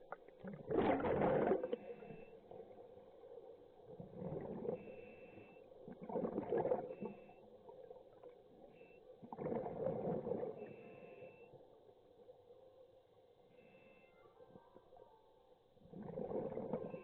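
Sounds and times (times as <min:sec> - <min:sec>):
exhaled bubbles underwater: 0:00.0 - 0:02.7, 0:03.8 - 0:05.0, 0:05.8 - 0:08.4, 0:09.2 - 0:10.8, 0:15.8 - 0:17.0
faint steady hum: 0:00.0 - 0:17.0.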